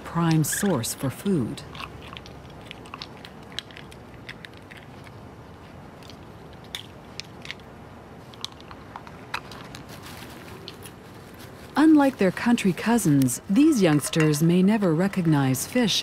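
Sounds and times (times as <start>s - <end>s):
low steady hiss: 0.0s - 16.0s
raccoons chewing and rummaging: 0.0s - 16.0s
crunches and crackles of wrappers: 1.6s - 13.4s.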